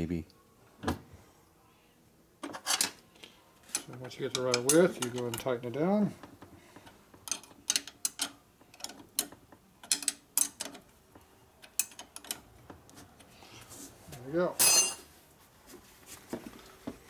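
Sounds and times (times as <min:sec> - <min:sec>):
wrench clicking on metal bolt: 0:07.2 - 0:10.8, 0:11.6 - 0:12.4.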